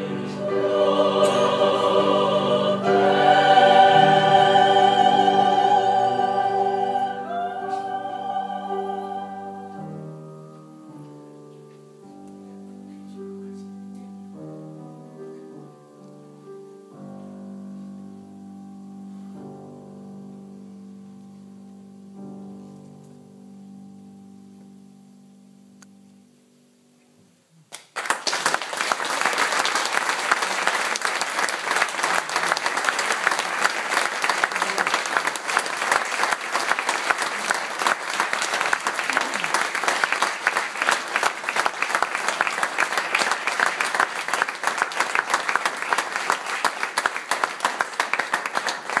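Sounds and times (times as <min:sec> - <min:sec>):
audience applause: 0:27.8 - 0:49.0.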